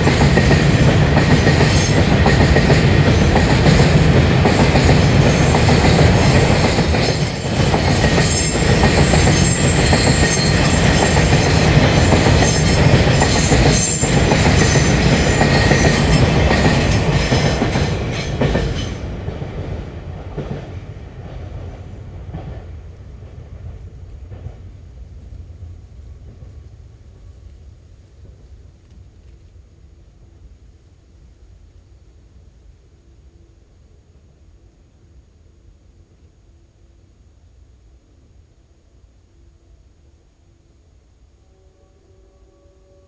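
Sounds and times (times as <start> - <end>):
high wheel squeal: 6.6 - 8.5.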